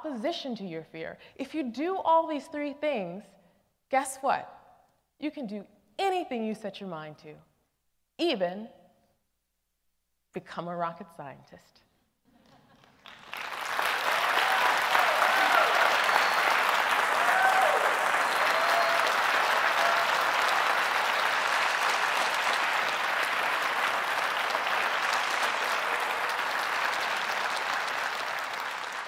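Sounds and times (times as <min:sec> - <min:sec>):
large audience applauding: 0:12.8 - 0:29.0
voices whooping and cheering: 0:14.0 - 0:22.3, 0:24.6 - 0:27.9.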